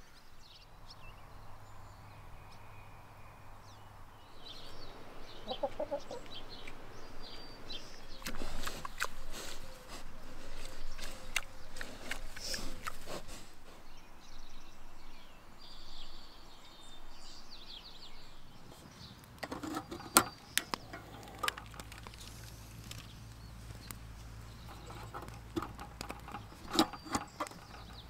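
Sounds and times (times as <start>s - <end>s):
small birds chirping: 0.0s - 28.0s.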